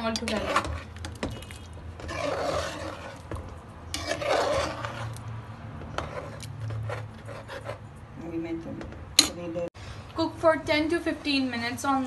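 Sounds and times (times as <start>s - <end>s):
metal spoon scraping a pot: 0.0s - 8.0s.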